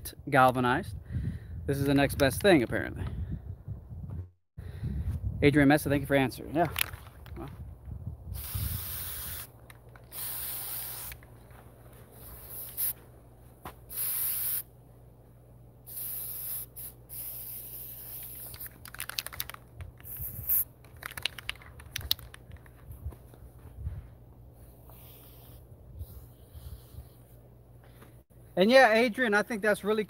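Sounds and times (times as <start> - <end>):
aerosol spray hissing: 8.4 - 9.5, 10.1 - 11.2, 13.9 - 14.7, 15.9 - 18.6, 24.8 - 27.2.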